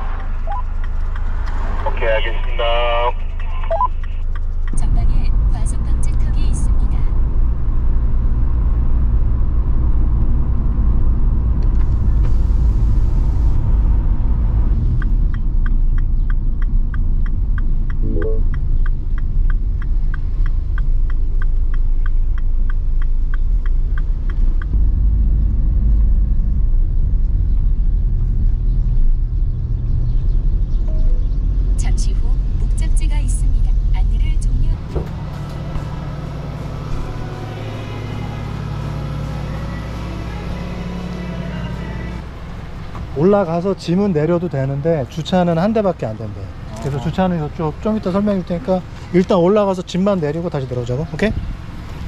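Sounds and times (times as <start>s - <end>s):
car engine and road noise: 0.0s - 52.0s
turn signal clicking: 0.1s - 1.6s, 14.9s - 25.2s.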